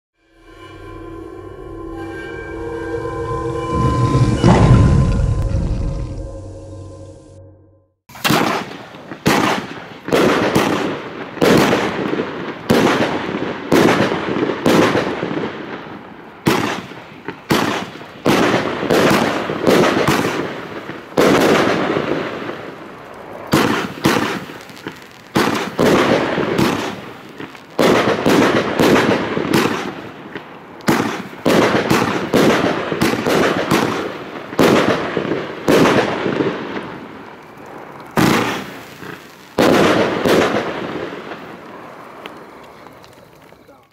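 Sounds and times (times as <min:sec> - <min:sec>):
firework cake bangs: 0:08.1 - 0:15.2.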